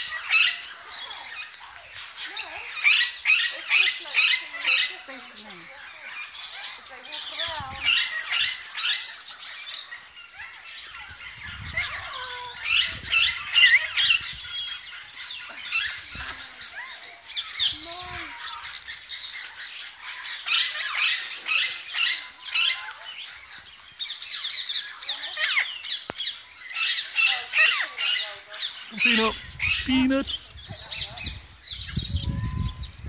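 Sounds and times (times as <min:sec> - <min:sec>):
parakeets squawking and chattering: 0:00.0 - 0:33.0.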